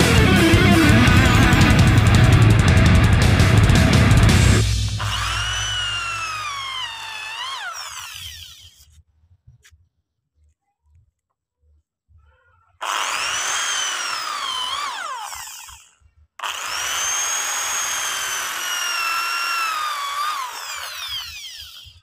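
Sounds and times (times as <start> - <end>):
electric drill boring into wood: 5.0 - 8.9, 12.8 - 22.0.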